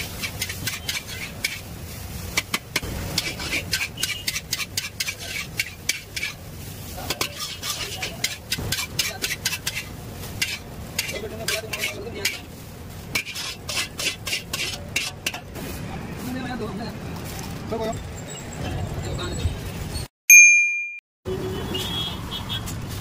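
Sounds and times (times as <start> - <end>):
metal utensils clanking on wok: 0.0 - 1.7, 2.3 - 6.4, 7.0 - 12.5, 13.1 - 15.5
food sizzling: 0.0 - 17.4.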